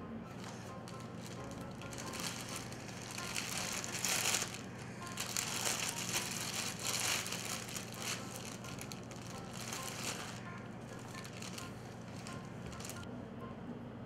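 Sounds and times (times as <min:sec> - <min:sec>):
plastic bag crinkling: 0:00.4 - 0:13.0.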